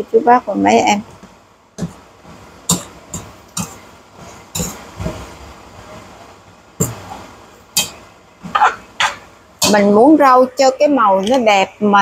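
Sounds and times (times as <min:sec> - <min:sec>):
faint frying hiss: 0:00.0 - 0:12.0
spatula clacking against wok: 0:02.6 - 0:05.2, 0:07.7 - 0:09.9.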